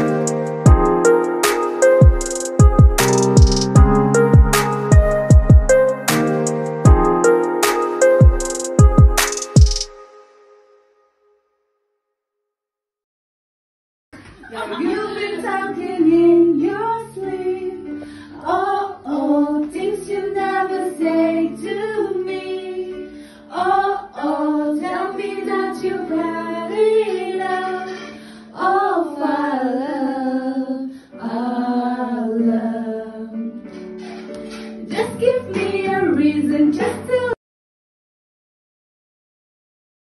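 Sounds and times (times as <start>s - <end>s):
instrumental accompaniment: 0.0s - 10.4s
women singing into microphone: 14.5s - 33.5s, 34.8s - 37.4s.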